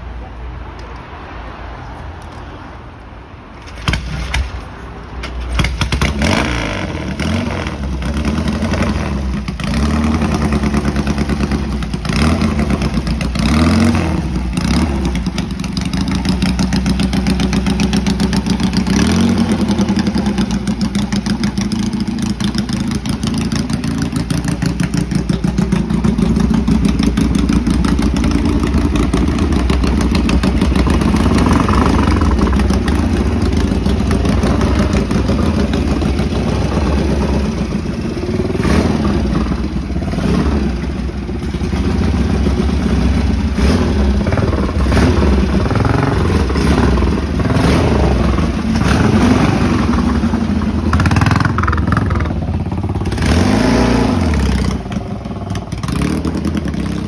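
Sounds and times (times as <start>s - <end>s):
motorcycle engine revving and idling: 5.3s - 57.0s.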